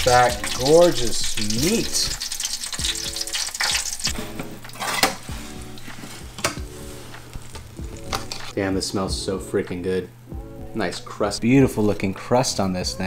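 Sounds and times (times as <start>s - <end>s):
fat sizzling and crackling: 0.0s - 9.0s.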